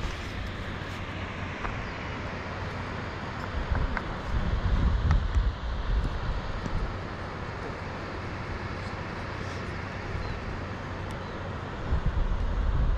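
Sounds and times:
wind buffeting microphone: 3.5s - 7.2s, 11.8s - 12.9s.

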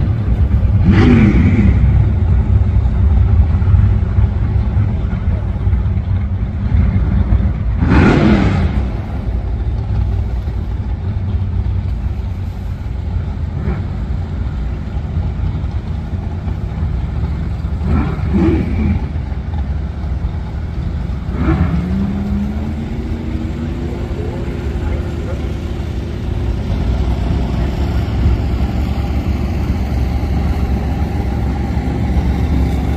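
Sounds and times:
engine revving: 0.0s - 3.9s, 6.6s - 10.7s, 16.5s - 19.6s, 20.2s - 32.9s
loud car engines running: 0.0s - 32.9s.

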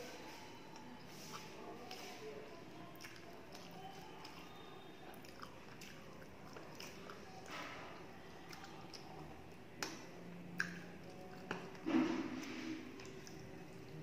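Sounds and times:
chewing crisp food: 0.0s - 14.0s
fingers mixing rice on plate: 0.2s - 2.2s.

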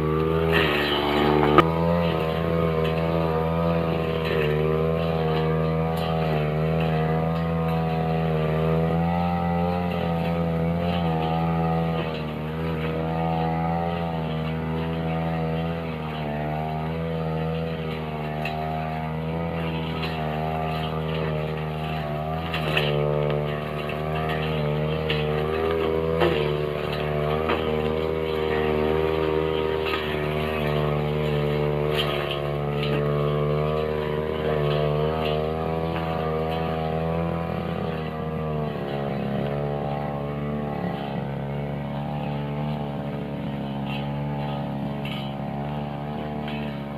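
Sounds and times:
brush cutter engine running: 0.0s - 46.9s.

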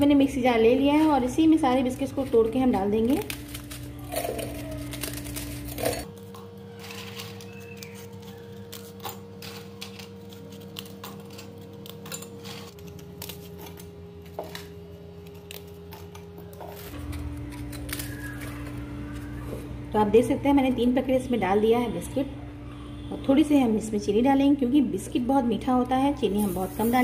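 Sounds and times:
soft background music: 0.0s - 11.8s, 15.5s - 27.0s
biscuits snapping: 3.1s - 6.1s.

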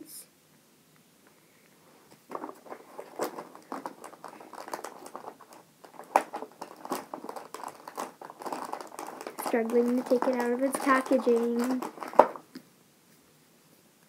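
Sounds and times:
packaging crinkling and scraping: 1.9s - 12.6s.

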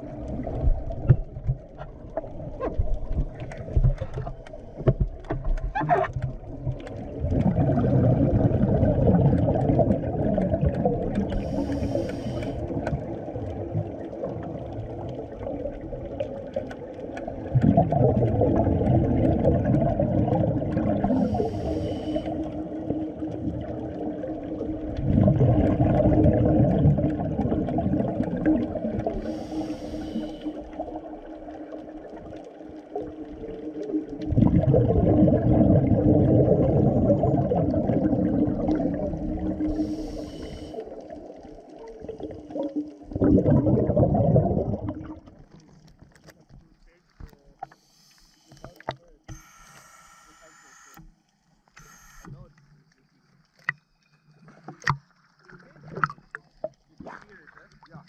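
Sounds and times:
exhaled bubbles underwater: 0.0s - 46.0s, 54.3s - 58.0s
regulator inhalation hiss: 11.4s - 12.6s, 21.2s - 22.6s, 29.2s - 30.6s, 39.6s - 41.0s, 47.7s - 48.8s.

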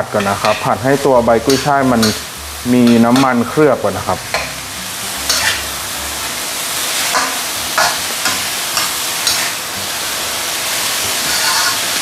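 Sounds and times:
metal spatula scraping a wok: 0.0s - 2.3s, 5.2s - 5.7s, 7.0s - 9.7s, 10.8s - 12.0s
vegetables sizzling in oil: 0.0s - 12.0s.

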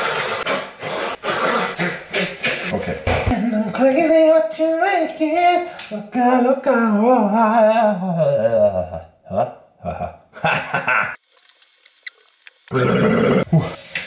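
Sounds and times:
man burping: 8.9s - 10.3s, 12.7s - 13.7s
laughter: 10.4s - 11.2s.

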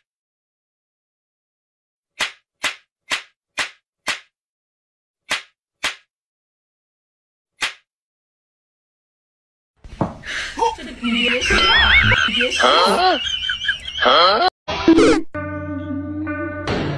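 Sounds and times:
sharp slaps: 2.2s - 4.4s, 5.3s - 6.1s, 7.6s - 7.9s.

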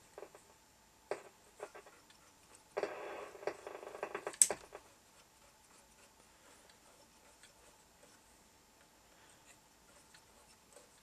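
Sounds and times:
radio crackles and clicks: 0.0s - 4.9s
radio receiver hiss: 2.7s - 4.8s.

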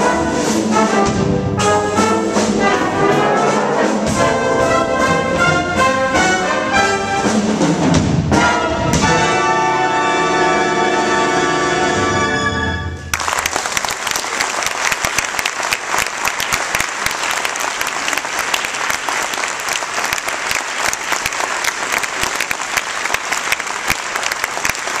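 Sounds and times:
brass band held chord: 0.0s - 13.1s
audience applause: 13.1s - 25.0s.

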